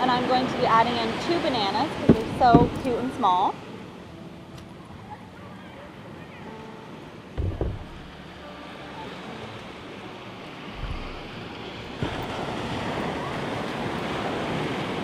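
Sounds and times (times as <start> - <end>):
ocean surf washing onto beach: 0.0 - 15.0
wind buffeting microphone: 1.6 - 3.2, 10.7 - 15.0
loud low thump: 7.4 - 8.2, 10.8 - 12.2.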